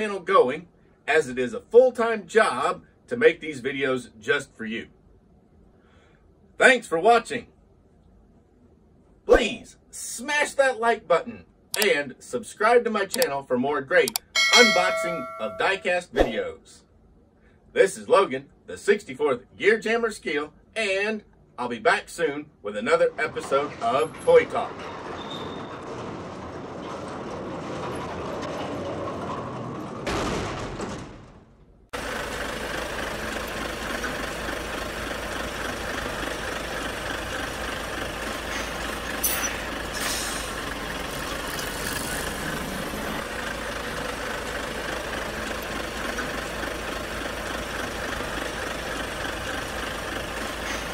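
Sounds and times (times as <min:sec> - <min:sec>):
engine running: 0:32.0 - 0:50.9
short hisses: 0:38.5 - 0:40.6.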